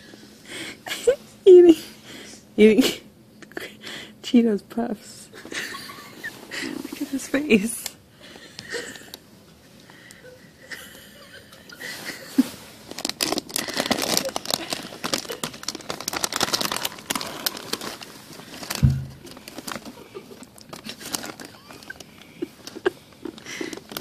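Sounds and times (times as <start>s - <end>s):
plastic snack bag rustling: 12.0s - 24.0s
low thump: 18.8s - 19.3s.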